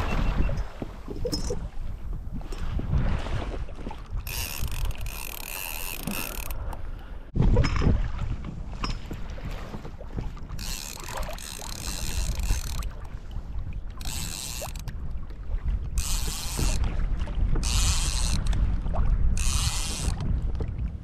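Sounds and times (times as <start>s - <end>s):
water noise: 0.0s - 21.0s
wind: 0.0s - 21.0s
fishing reel cranking: 4.2s - 6.6s, 10.6s - 12.9s, 14.0s - 14.9s, 16.0s - 16.8s, 17.6s - 18.6s, 19.4s - 20.2s.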